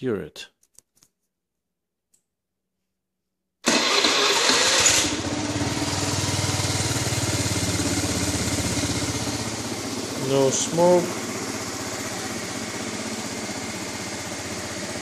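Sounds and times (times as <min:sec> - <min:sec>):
scooter engine idling: 0:03.7 - 0:15.0.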